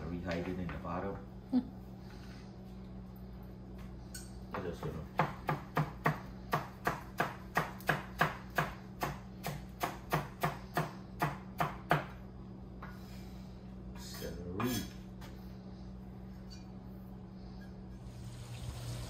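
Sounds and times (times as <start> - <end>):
knife chopping on wooden board: 4.5 - 12.2.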